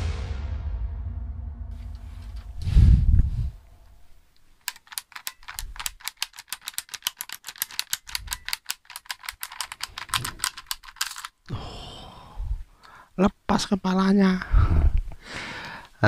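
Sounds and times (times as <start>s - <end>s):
plastic toy clicking: 4.5s - 11.5s.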